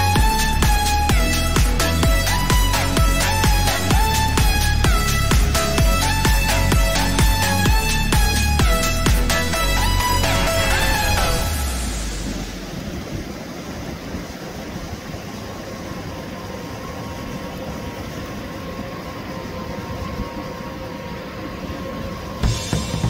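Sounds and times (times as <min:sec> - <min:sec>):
background music: 0:00.0 - 0:12.8, 0:20.3 - 0:23.0
distant jet ski engines: 0:00.0 - 0:23.0
wind: 0:00.0 - 0:23.0.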